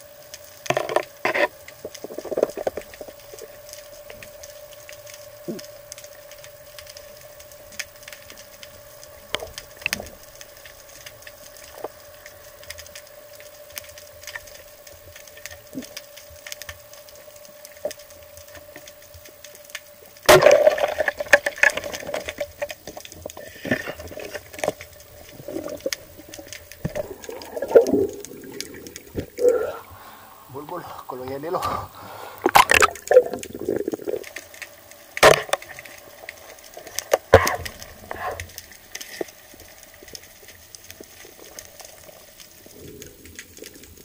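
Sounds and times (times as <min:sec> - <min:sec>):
steady underwater hum: 0:00.0 - 0:44.0
faint clicks: 0:00.2 - 0:20.2, 0:21.2 - 0:30.2, 0:32.4 - 0:44.0
churning water and bubbles: 0:00.6 - 0:16.5, 0:17.2 - 0:44.0
loud crack: 0:20.2 - 0:22.6, 0:35.1 - 0:36.1.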